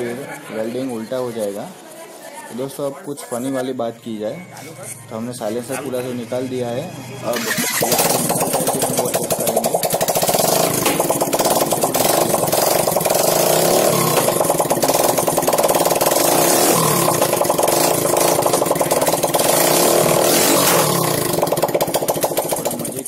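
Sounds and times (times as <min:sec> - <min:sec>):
motorcycle engine open exhaust popping: 0:07.3 - 0:23.0.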